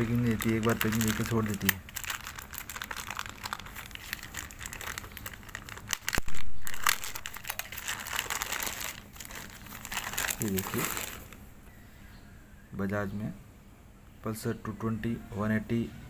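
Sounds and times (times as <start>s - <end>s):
plastic wrapping crinkling: 0.0s - 11.4s.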